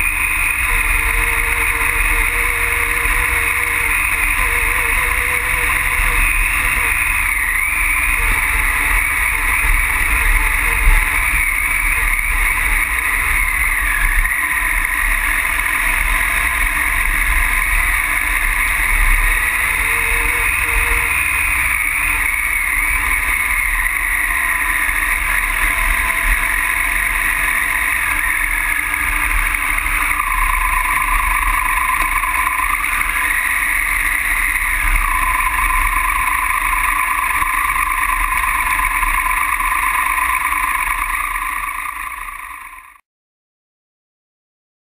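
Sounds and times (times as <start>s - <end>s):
motorcycle engine running: 0.0s - 43.0s.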